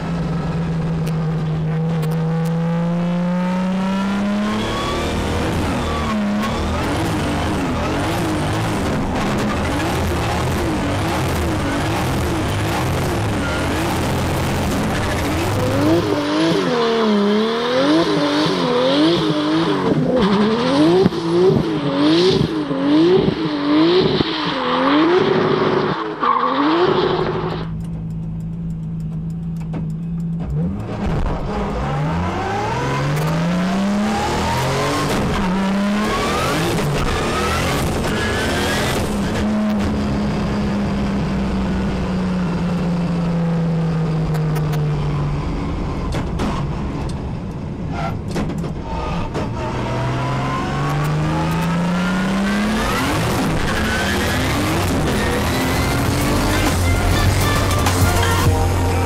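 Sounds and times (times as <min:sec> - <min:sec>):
car engine revving: 0:00.0 - 0:59.0
tyre squeal: 0:13.0 - 0:14.1.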